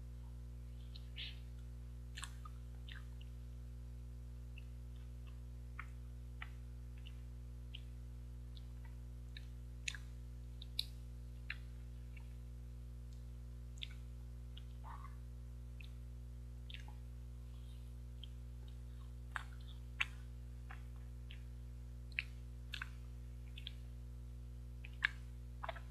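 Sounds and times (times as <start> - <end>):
steady low hum: 0.0 - 25.9
wet mouth clicks and lip smacks: 0.9 - 3.3, 4.6 - 7.9, 8.5 - 12.4, 13.1 - 14.8, 16.6 - 17.0, 18.2 - 21.5, 22.1 - 23.9, 24.8 - 25.9.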